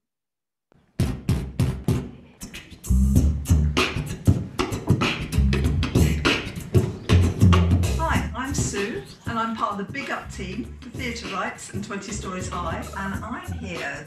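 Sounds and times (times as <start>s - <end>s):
heavy pulsing bass: 2.8s - 9.5s, 10.2s - 14.0s.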